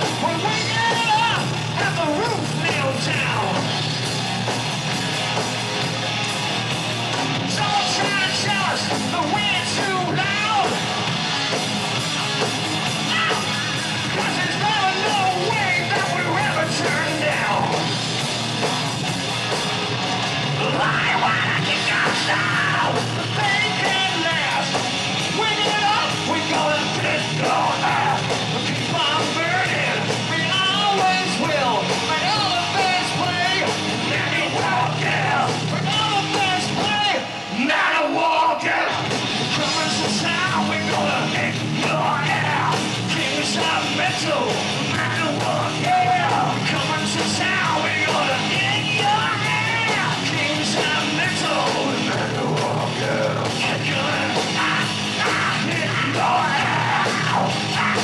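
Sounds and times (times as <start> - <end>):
drum kit: 0.0 - 37.8, 38.9 - 58.0
bass guitar: 0.0 - 58.0
distorted electric guitars: 0.0 - 58.0
shouted vocals: 7.5 - 11.1, 12.8 - 17.9, 20.4 - 58.0.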